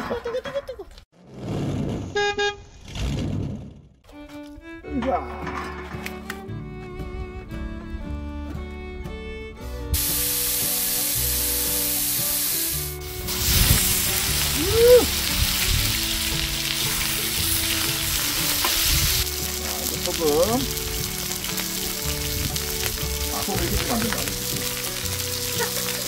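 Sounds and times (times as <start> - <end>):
light background music: 4.2 - 26.0
oil sizzling on griddle: 10.0 - 26.0
steaks sizzling in oil: 10.0 - 26.0.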